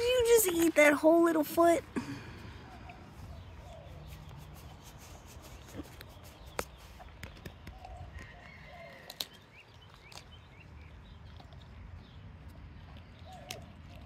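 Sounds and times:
dog crunching bones: 5.6 - 14.0.

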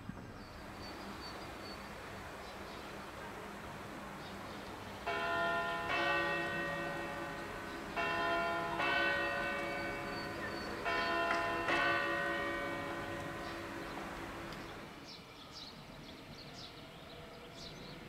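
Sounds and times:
church bells ringing: 1.3 - 15.0.

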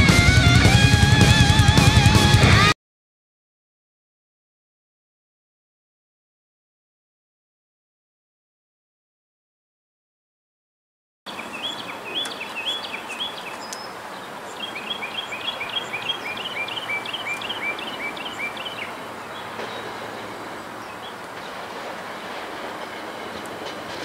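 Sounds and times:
songbird chirping: 11.3 - 23.9
outdoor background noise: 11.3 - 24.0.

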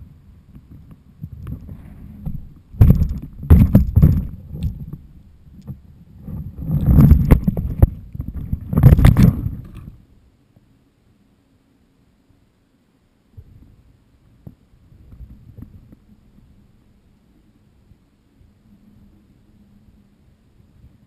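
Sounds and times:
wind buffeting microphone: 0.0 - 10.0
sharp knocks: 2.8 - 4.4.

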